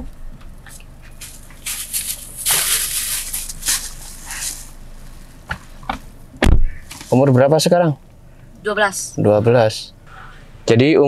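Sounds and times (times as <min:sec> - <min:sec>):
clothes and backpack rustling: 0:00.7 - 0:05.8
car door shutting thud: 0:05.5 - 0:06.8.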